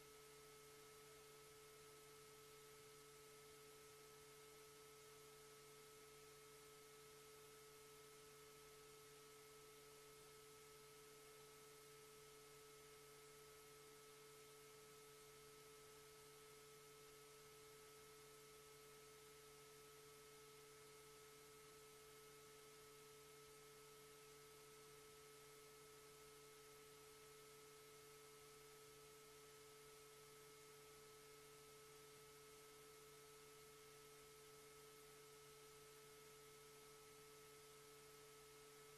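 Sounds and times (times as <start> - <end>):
faint electronic hum: 0.0 - 38.9.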